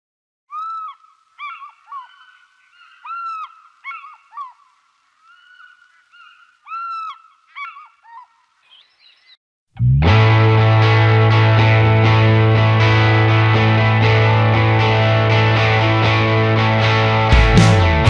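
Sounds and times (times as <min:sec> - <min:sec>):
geese honking: 0:00.5 - 0:08.5.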